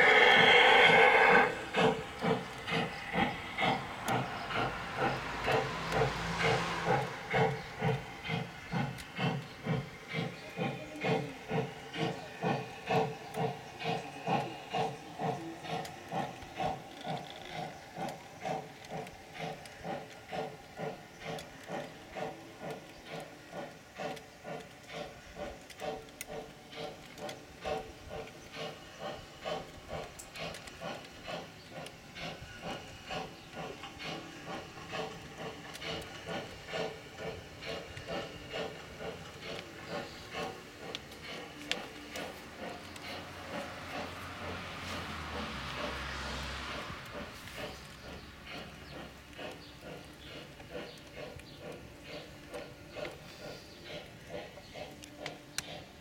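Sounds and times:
model steam locomotive chuffing: 0:00.0 - 0:56.0.

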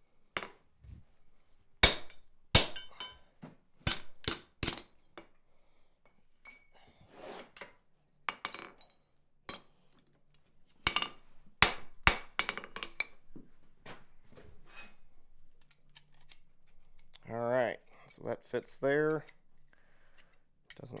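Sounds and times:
hammer striking metal on anvil: 0:01.8 - 0:03.2
clinks of iron and tongs: 0:02.8 - 0:03.2.

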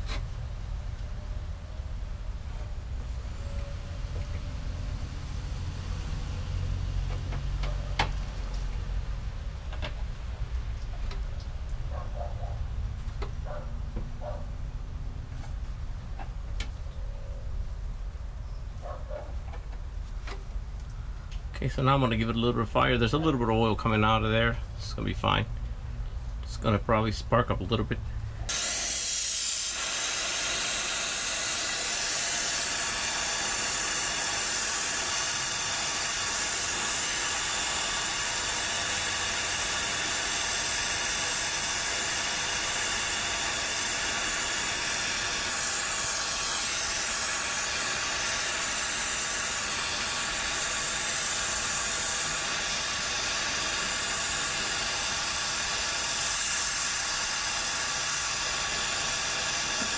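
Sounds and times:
gas torch flame hissing: 0:28.5 - 0:59.9.

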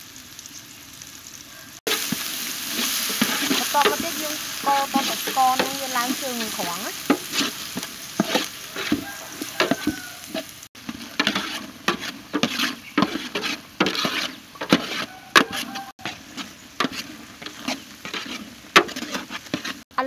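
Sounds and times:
paste sizzling: 0:00.0 - 0:19.9
metal spatula scraping a pot: 0:01.9 - 0:19.9.

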